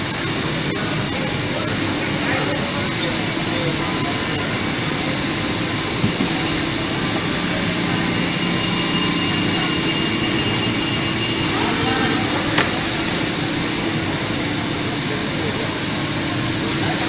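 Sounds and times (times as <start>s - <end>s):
fabric cutting machine whirring: 3.2s - 15.2s.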